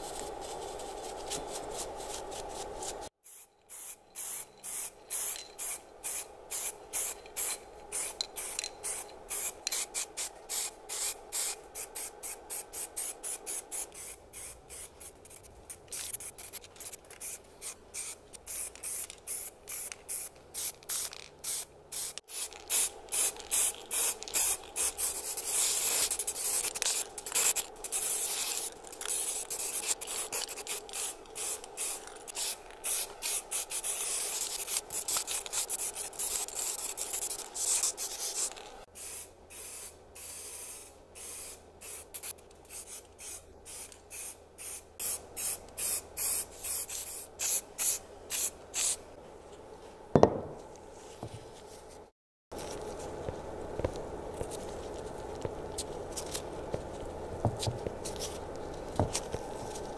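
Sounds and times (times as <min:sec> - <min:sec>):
aerosol spray can hissing: 0:01.7 - 0:15.4, 0:16.0 - 0:49.0.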